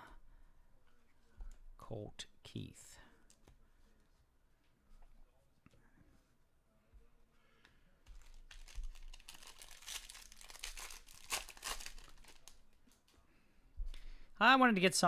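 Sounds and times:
foil wrapper crinkling: 8.2s - 12.6s.

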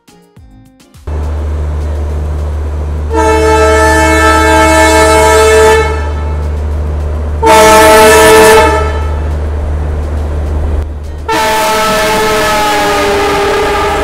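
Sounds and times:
locomotive horn blasts: 3.1s - 6.5s, 7.4s - 9.3s, 11.3s - 14.0s.

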